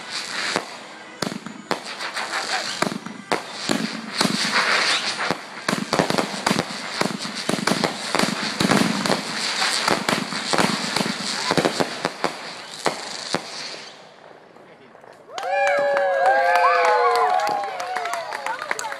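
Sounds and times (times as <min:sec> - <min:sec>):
continuous crackling: 0:00.0 - 0:13.5
sharp bangs: 0:00.0 - 0:14.7
fireworks bursting: 0:00.0 - 0:15.6.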